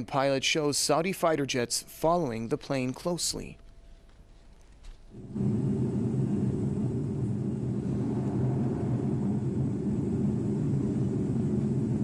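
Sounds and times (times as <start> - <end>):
airliner cabin drone: 5.1 - 12.0.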